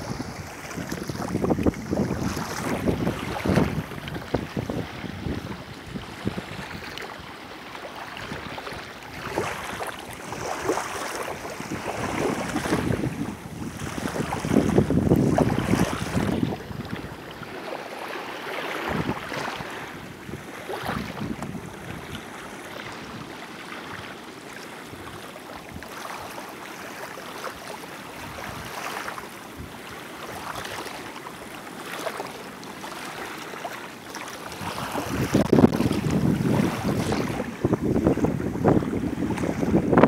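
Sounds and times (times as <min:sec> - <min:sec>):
wind buffeting microphone: 0:00.0 - 0:06.9, 0:08.2 - 0:17.4, 0:18.8 - 0:23.4, 0:34.5 - 0:40.0
small waves lapping at shore: 0:00.0 - 0:40.0.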